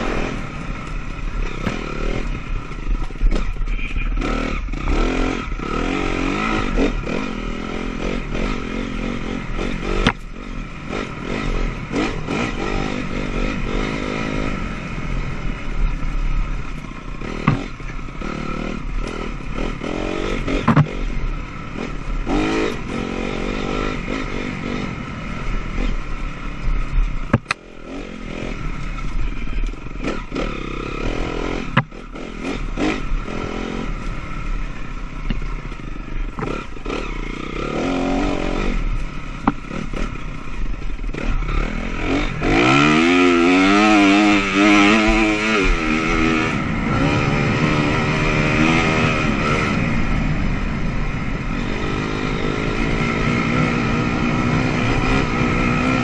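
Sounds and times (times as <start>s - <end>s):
dirt bike engine revving: 0.0s - 56.0s
sharp knocks and clatter: 17.4s - 18.0s, 20.6s - 21.0s.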